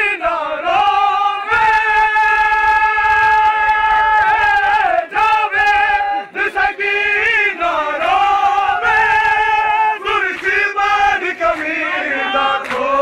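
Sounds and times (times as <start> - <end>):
men chanting a lament: 0.0 - 13.0.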